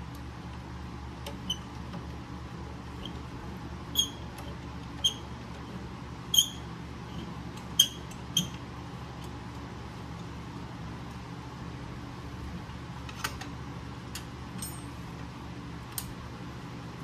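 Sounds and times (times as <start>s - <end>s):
electric fan humming: 0.0s - 17.0s
bolts clinking on metal bracket: 14.2s - 15.0s.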